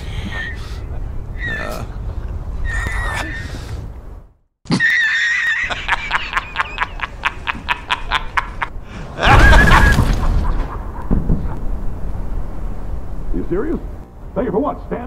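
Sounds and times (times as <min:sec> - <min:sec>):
artificial cackling laugh: 0:00.3 - 0:03.4, 0:04.7 - 0:11.6.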